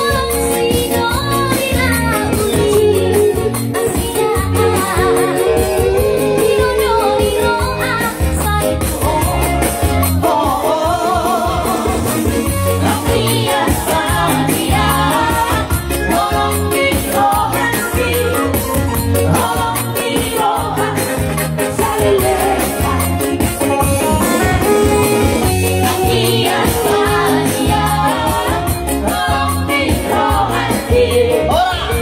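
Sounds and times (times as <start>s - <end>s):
bass and drum beat: 0.0s - 32.0s
electronic keyboard music: 0.0s - 32.0s
person singing: 0.0s - 32.0s.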